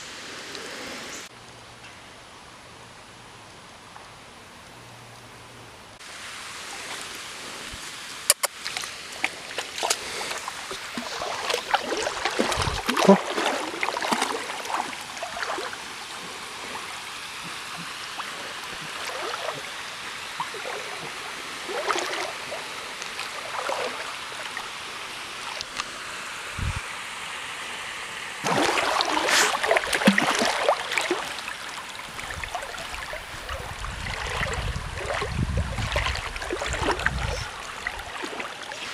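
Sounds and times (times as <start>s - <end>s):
dog splashing through water: 9.5s - 19.8s, 20.4s - 22.6s, 23.2s - 24.6s, 28.4s - 31.4s, 32.2s - 38.9s.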